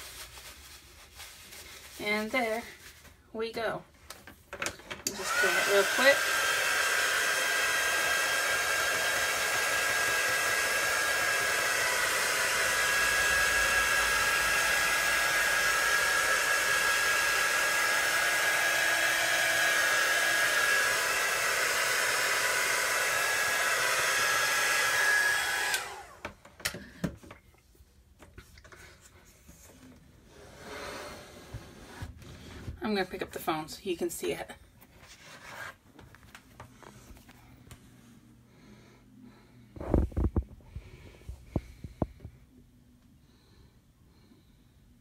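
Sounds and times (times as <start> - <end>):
hair dryer blowing: 5.0 - 27.1.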